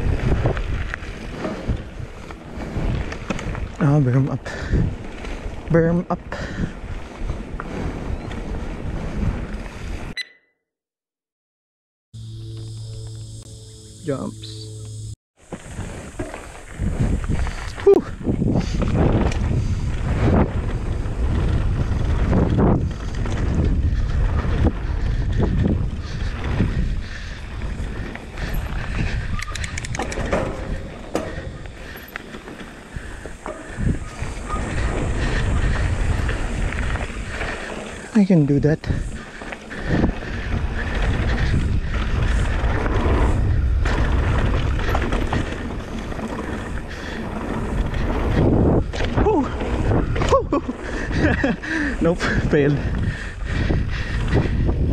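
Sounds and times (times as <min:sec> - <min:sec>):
bike tyres rolling on dirt: 0:00.0 - 0:10.2, 0:14.8 - 0:54.9
wind buffeting microphone: 0:00.0 - 0:10.2, 0:15.5 - 0:54.9
bike knocks and rattles: 0:15.4 - 0:17.4, 0:25.2 - 0:37.7.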